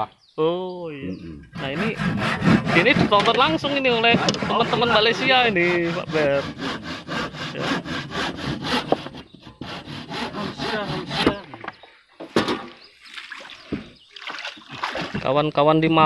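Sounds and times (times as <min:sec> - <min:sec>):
handsaw cutting wood: 0:01.5 - 0:11.5.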